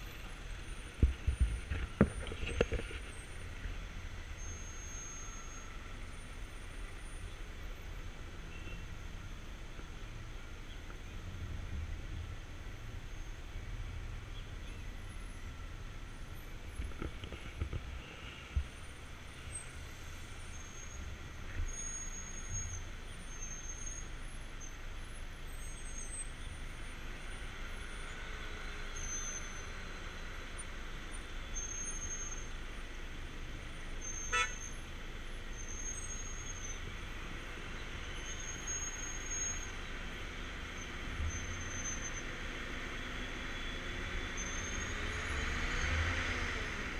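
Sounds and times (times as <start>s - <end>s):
idling car and truck engines: 0.0s - 46.9s
car horn toot: 34.2s - 34.7s.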